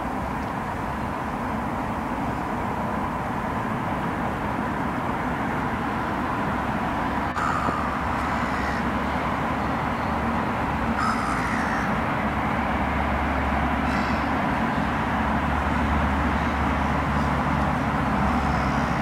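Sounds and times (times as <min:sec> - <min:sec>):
distant road traffic rumble: 0:00.0 - 0:19.0
bird calling: 0:07.4 - 0:09.0, 0:11.0 - 0:12.0, 0:13.8 - 0:14.4, 0:18.2 - 0:19.0.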